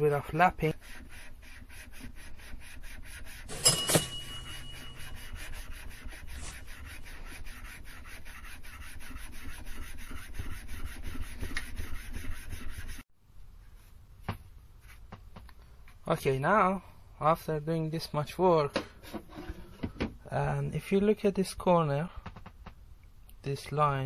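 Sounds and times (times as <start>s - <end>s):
metal on metal rubbing: 3.3s - 7.6s
metallic clink: 3.5s - 5.3s.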